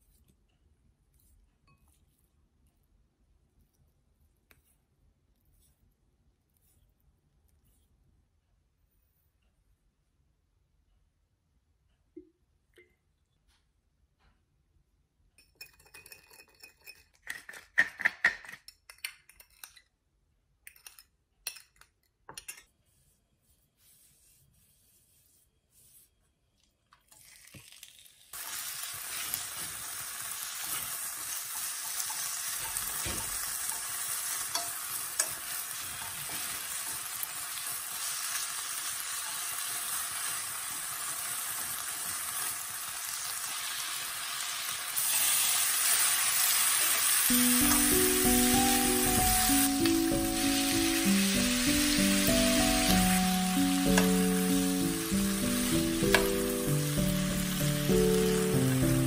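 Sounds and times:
spoon clinking in ceramic bowl: 15.4 - 19.8
beef sizzling in frying pan: 27.5 - 59.0.

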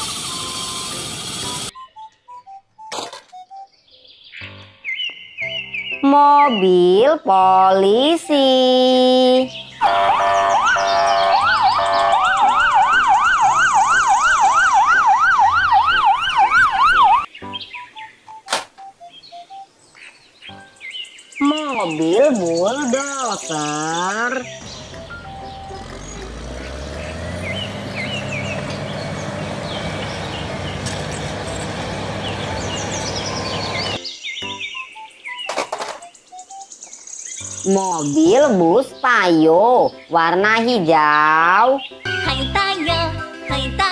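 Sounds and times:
birds chirping: 1.7 - 12.9, 16.0 - 42.2
fast yelping police siren: 9.8 - 17.3
slow sweeping sirens: 9.8 - 17.3, 24.6 - 34.0
bulldozer diesel engine running: 24.4 - 34.0.

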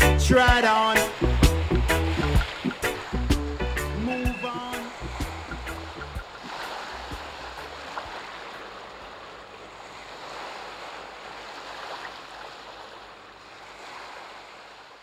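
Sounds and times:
ocean surf washing: 0.0 - 15.0.

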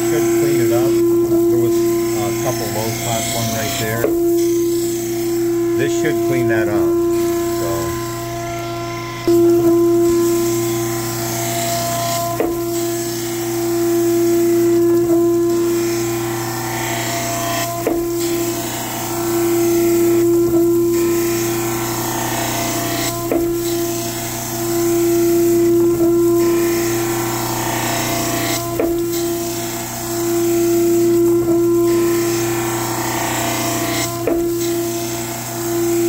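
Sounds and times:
surface grinder humming: 0.0 - 23.3.

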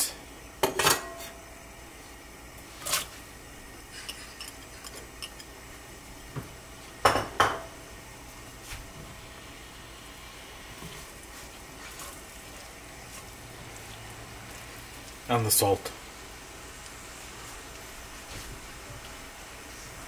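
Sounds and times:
metal utensils clinking on pots: 0.7 - 1.3, 3.9 - 5.5.

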